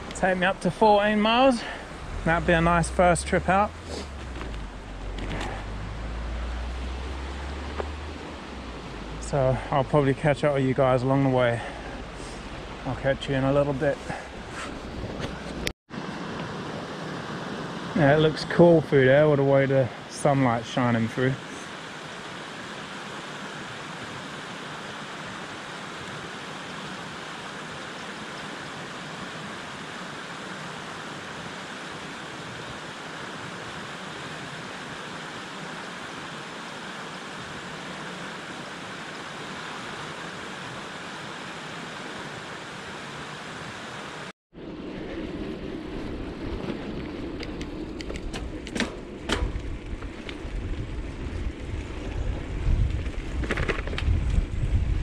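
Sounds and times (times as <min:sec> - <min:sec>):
floodwater rushing: 0:00.0 - 0:44.3
wind rumble on microphone: 0:44.6 - 0:55.0.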